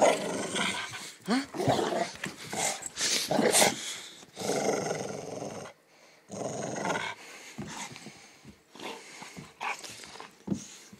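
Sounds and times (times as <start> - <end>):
dog growling: 0.0 - 3.8, 4.4 - 7.2.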